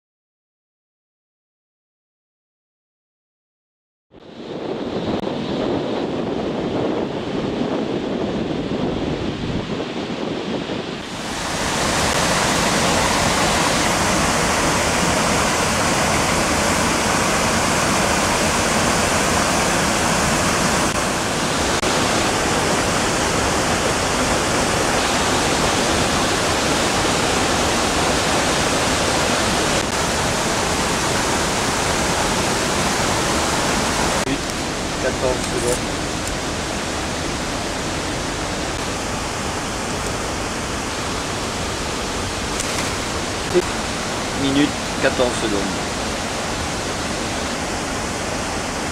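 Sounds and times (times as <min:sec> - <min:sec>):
mountain stream rushing: 0:10.8 - 0:48.9.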